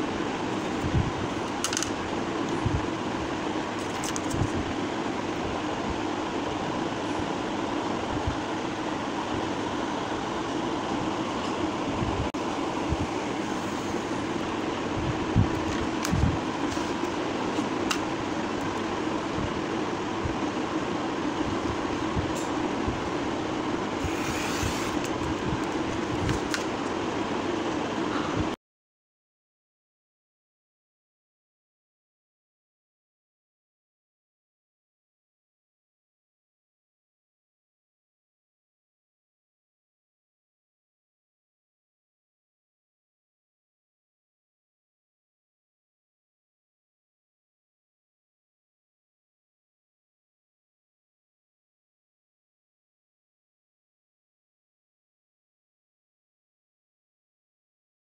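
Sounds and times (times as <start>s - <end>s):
mechanical hum: 0.0s - 28.6s
paper trimmer cutting paper: 24.0s - 26.8s.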